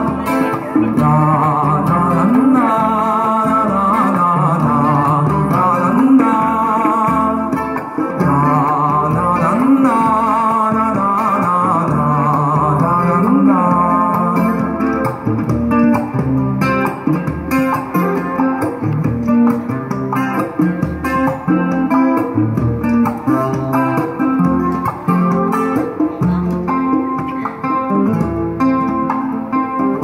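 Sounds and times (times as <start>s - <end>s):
person singing: 0.0s - 15.2s, 23.1s - 27.9s
acoustic guitar strumming chords: 0.0s - 30.0s
hand drum beat: 0.0s - 30.0s.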